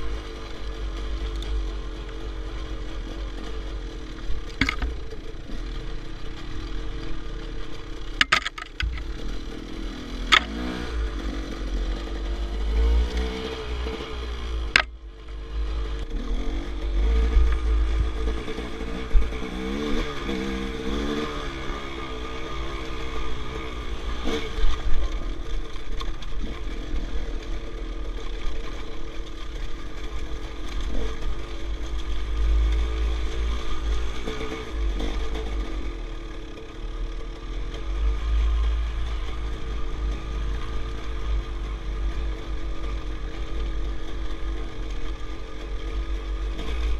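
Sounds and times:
dirt bike engine revving: 0.0 - 25.6
bike knocking over rocks: 4.4 - 5.0, 8.2 - 9.2.

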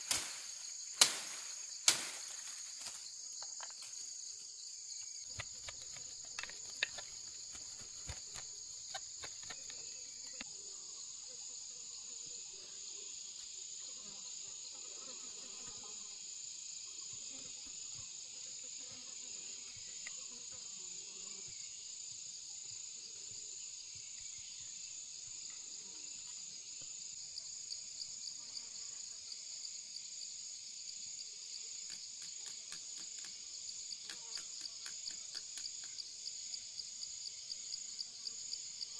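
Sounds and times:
insects chirping: 0.0 - 38.9.

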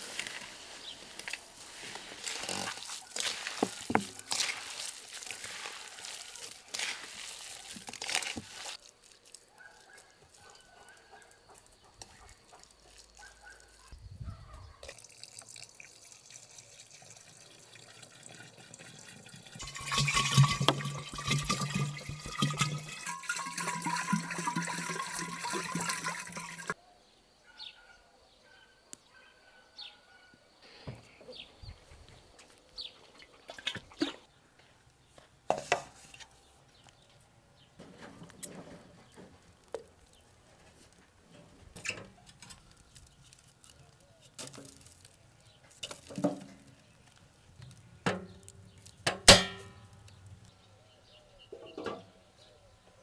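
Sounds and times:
water pouring into bottle: 14.8 - 26.8.

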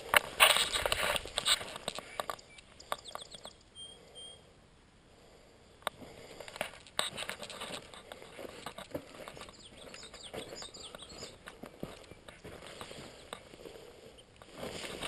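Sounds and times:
handheld camera clicks and rustles: 0.0 - 3.6, 5.8 - 13.6
faint high bird chirps: 2.0 - 4.5, 9.3 - 12.4
footsteps on sand: 6.0 - 13.8, 14.5 - 15.0.

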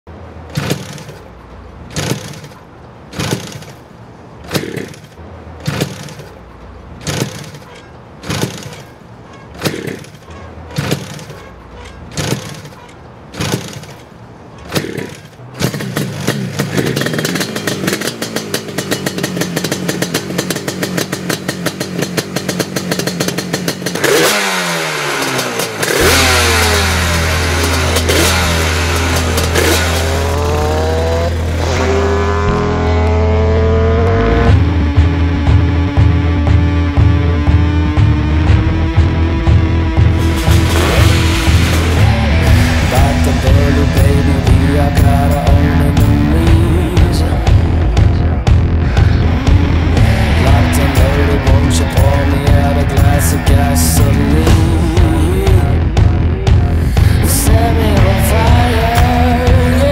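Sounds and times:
motorcycle engine revving: 0.2 - 59.9
strong swells: 39.2 - 44.9.

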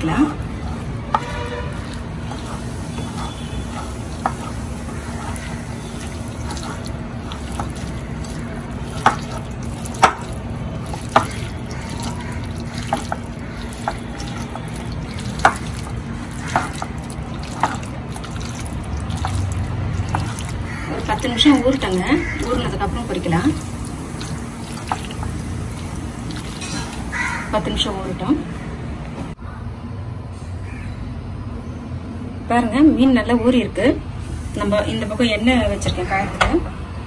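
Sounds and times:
wet squelching of hand in marinade: 0.3 - 27.5.

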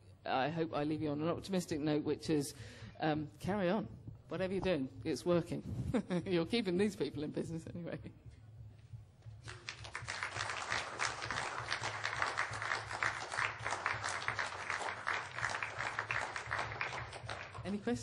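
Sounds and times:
audience applauding: 9.4 - 18.0.

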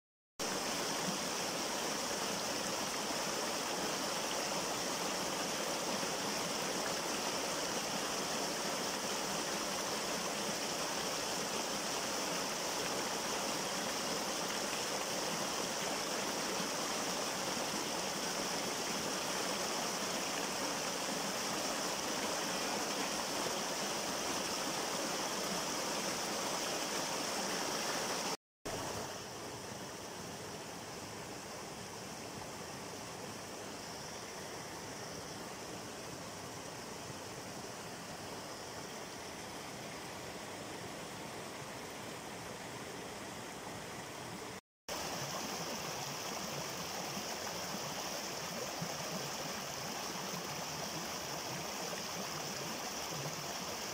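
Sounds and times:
waterfall rushing and splashing: 0.4 - 29.2, 44.4 - 53.9.

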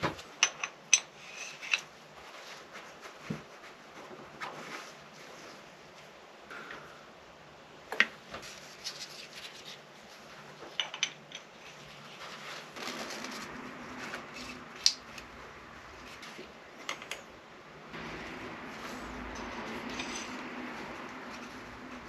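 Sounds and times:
metal parts clinking and rubbing: 0.4 - 1.9, 10.7 - 13.5, 18.8 - 22.0.

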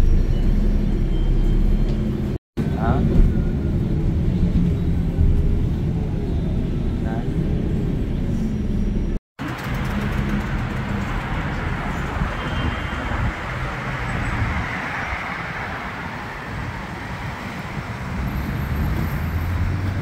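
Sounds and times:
car engines running: 0.0 - 20.0
tyre noise on road: 8.1 - 20.0.

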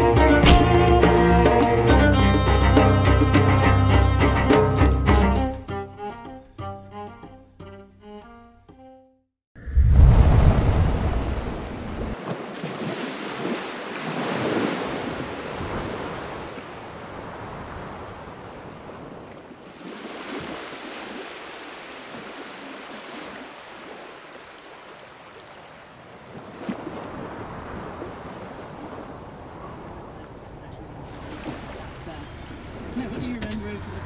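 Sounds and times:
wind gusting over microphone: 9.6 - 19.4
sea noise: 9.6 - 34.0.

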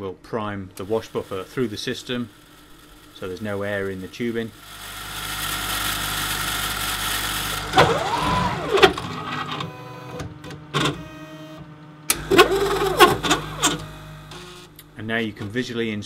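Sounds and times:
pump running: 0.8 - 9.5, 12.1 - 15.4
motor whine: 0.8 - 15.9
sharp mechanical clicks: 12.1 - 15.6.

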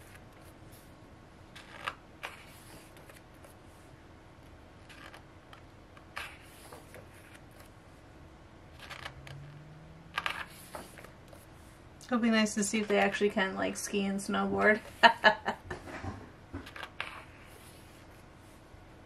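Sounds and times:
book pages turning: 1.5 - 3.7, 4.4 - 7.8, 8.7 - 9.5, 10.1 - 11.6, 16.6 - 18.6.

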